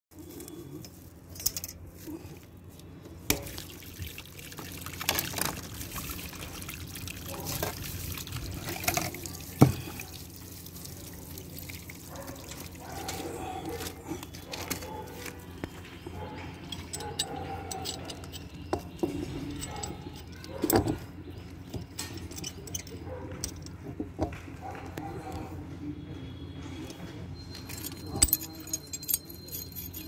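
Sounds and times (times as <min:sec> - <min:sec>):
water trickling and dripping: 0:03.3 - 0:13.9.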